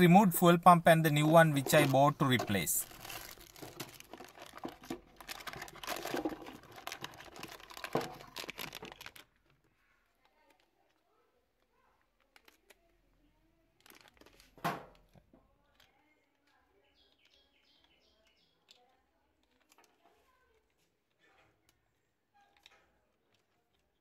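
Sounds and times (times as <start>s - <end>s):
plastic packaging crinkling: 0.7s - 9.9s, 12.2s - 12.9s, 13.6s - 14.6s.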